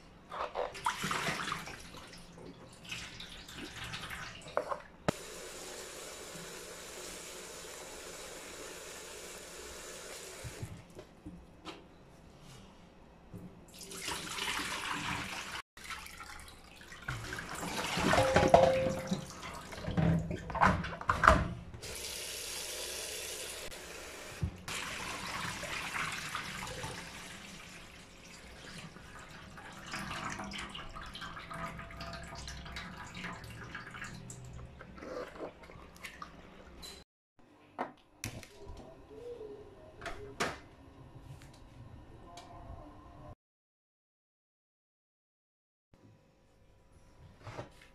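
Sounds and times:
tap water splashing into colander: 0:13.8 - 0:20.8.

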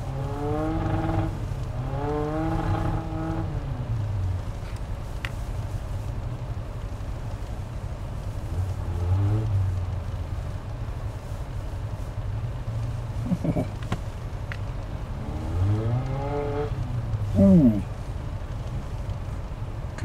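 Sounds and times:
pickup truck engine revving: 0:00.0 - 0:03.7, 0:08.5 - 0:09.8, 0:15.1 - 0:17.9.

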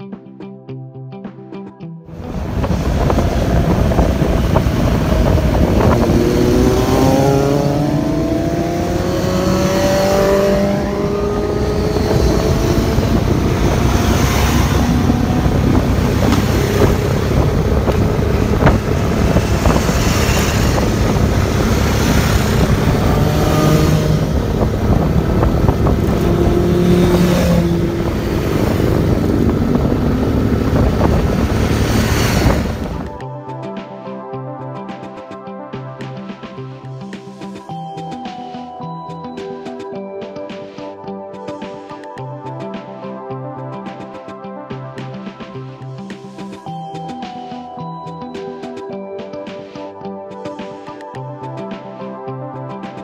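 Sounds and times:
wind noise on microphone: 0:02.1 - 0:33.3
motorcycle engines revving: 0:02.2 - 0:33.2.

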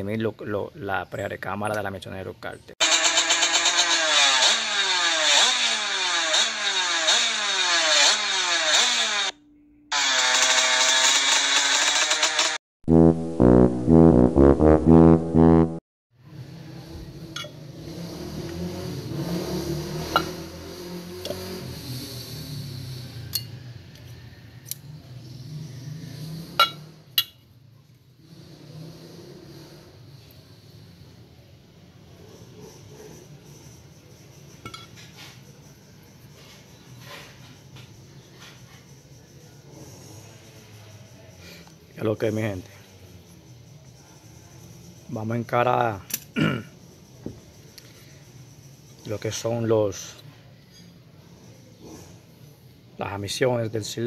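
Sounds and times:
two-stroke motorcycle engine revving: 0:02.8 - 0:15.8, 0:16.5 - 0:23.6
steady drone: 0:11.9 - 0:15.8.

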